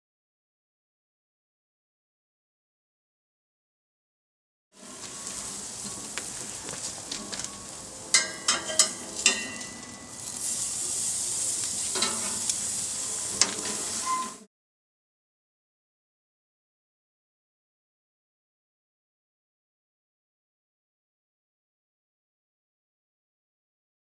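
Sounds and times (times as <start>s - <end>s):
steak sizzling on a grill: 4.8s - 14.5s
metal tongs clacking: 7.2s - 10.7s, 11.6s - 14.2s.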